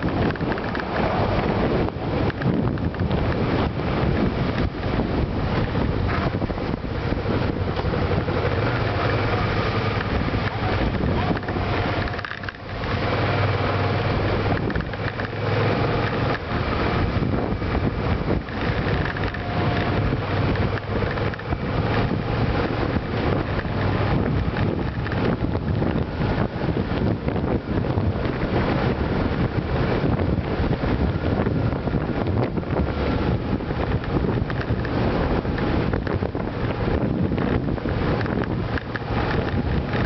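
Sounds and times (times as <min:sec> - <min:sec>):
motorcycle engine running: 0:00.0 - 0:40.0
wind rushing over microphone: 0:00.0 - 0:40.0.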